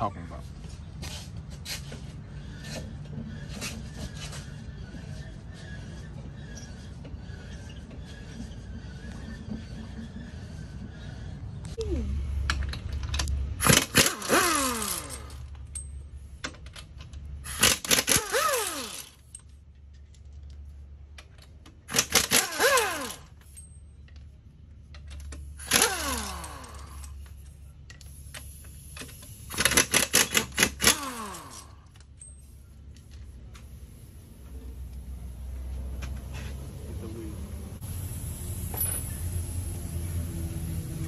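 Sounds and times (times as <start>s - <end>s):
pneumatic impact wrench rattling: 12.3s - 20.5s, 21.2s - 35.0s, 37.8s - 39.8s.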